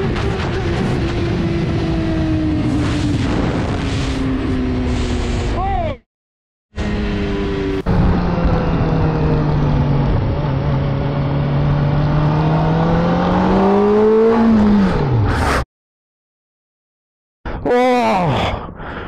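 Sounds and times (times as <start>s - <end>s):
motorcycle engines: 0.0s - 5.6s, 6.8s - 15.3s
wind noise: 0.0s - 5.6s.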